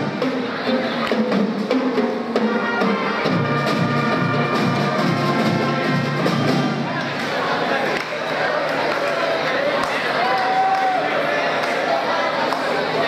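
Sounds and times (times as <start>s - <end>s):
pep band playing: 0.0s - 7.1s.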